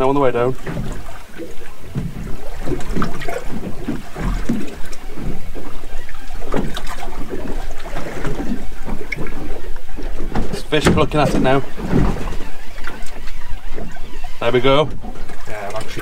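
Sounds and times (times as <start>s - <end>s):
waves slapping against boat hull: 0.0s - 16.0s.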